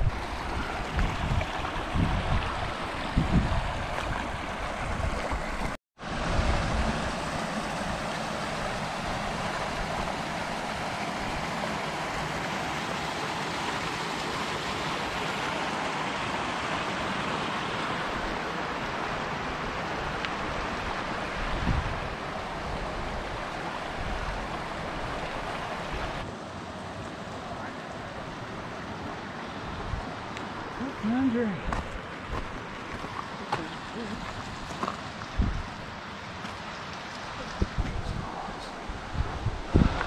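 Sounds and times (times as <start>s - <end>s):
wind buffeting microphone: 0.0s - 8.0s, 21.4s - 22.2s, 34.3s - 35.9s, 37.3s - 40.0s
creek water rushing: 0.0s - 40.0s.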